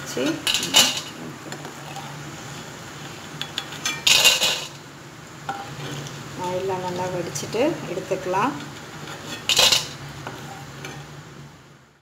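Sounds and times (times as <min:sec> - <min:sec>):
metal spoon scraping a pan: 0:00.3 - 0:04.8, 0:05.5 - 0:07.0, 0:08.5 - 0:11.1.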